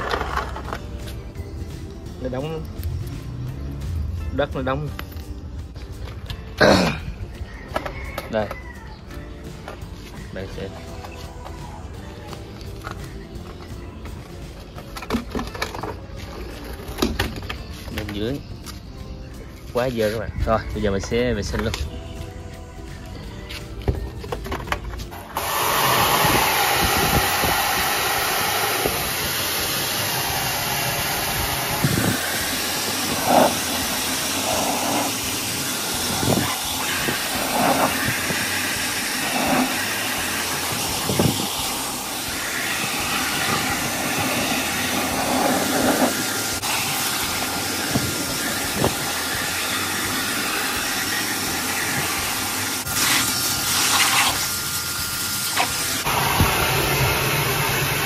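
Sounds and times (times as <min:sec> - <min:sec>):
water jet spraying on metal drum: 0:25.3 - 0:58.0.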